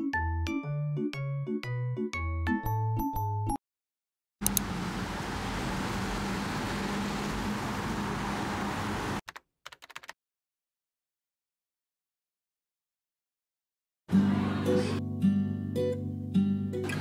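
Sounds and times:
clicks: 4.4s - 4.7s.

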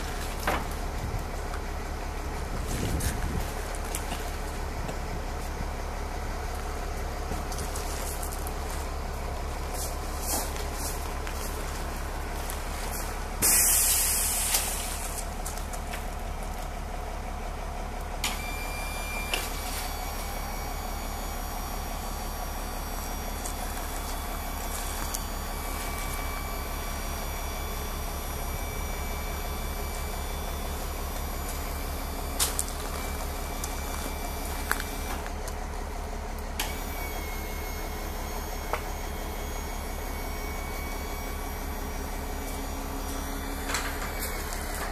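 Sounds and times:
steady low hum: 0.0s - 44.9s
steady whine: 0.0s - 44.9s
sudden loud hiss: 13.4s - 15.0s.

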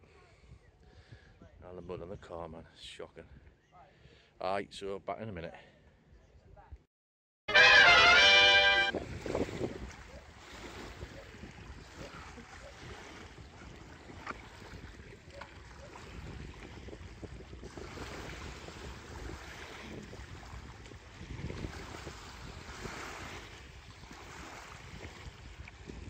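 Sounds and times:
wind on microphone: 8.7s - 26.0s
waves lapping on pebble shore: 9.1s - 15.0s, 17.7s - 20.6s, 21.2s - 26.0s
kayak paddle splashes and knocks: 10.9s - 26.0s.

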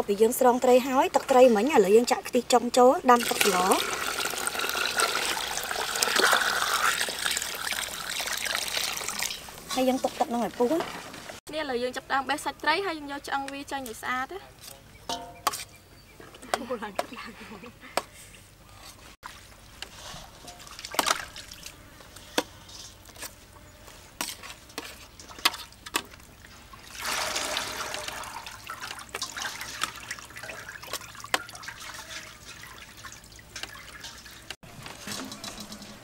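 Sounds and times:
spoons scraping metal tray: 22.1s - 25.6s, 34.9s - 36.0s.

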